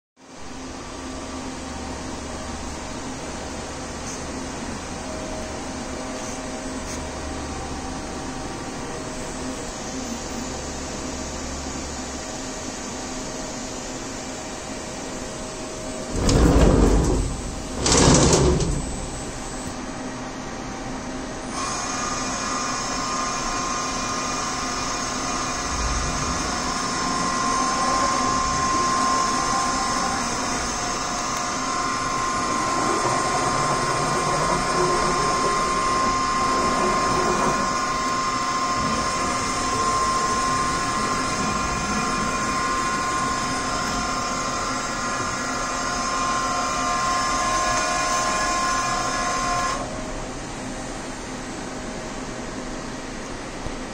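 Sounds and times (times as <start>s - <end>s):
machine mechanical hum: 0.2s - 53.9s
steady machine whine: 0.2s - 53.9s
loud bursts of machine noise: 15.9s - 19.7s, 21.5s - 49.9s.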